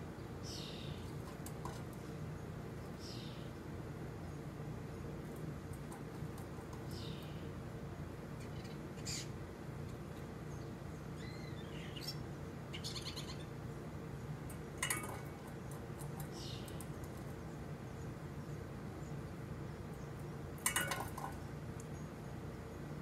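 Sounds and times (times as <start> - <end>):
steady low hum: 0.0 - 23.0
starlings chirping and whistling: 8.4 - 9.4, 10.5 - 13.6.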